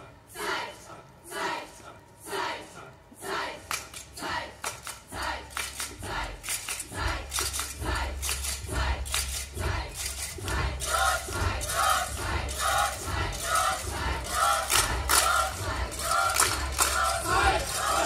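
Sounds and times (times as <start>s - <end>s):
choir clapping and clicking: 3.2s - 18.0s
low thumping beat: 6.0s - 18.0s
group shouts chanted in rhythm: 10.5s - 18.0s.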